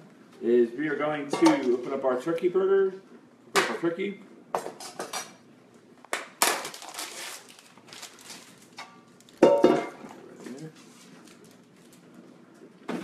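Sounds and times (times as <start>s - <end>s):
plastic film crinkling: 6.4s - 9.4s, 10.5s - 12.2s.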